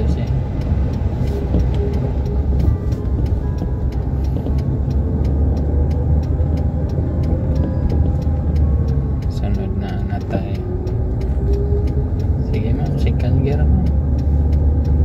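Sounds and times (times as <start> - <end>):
engine and road rumble: 0.0 - 15.0
faint ticks: 0.0 - 15.0.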